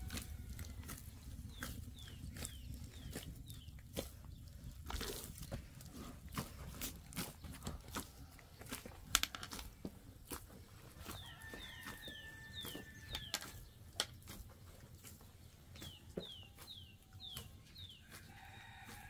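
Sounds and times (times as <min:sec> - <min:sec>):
hands kneading dough in a basin: 0:00.0 - 0:19.0
bird chirping: 0:01.3 - 0:04.8, 0:11.0 - 0:14.1, 0:14.8 - 0:18.7.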